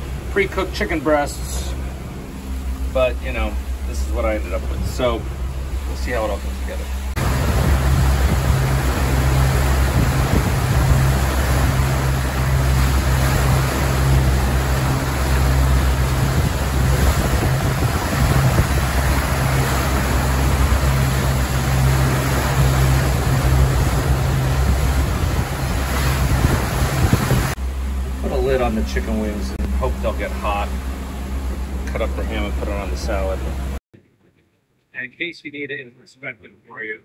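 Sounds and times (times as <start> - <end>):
boat wake rushing: 0.0 - 33.8
steady low rumble: 0.0 - 33.8
wind buffeting microphone: 6.9 - 28.3.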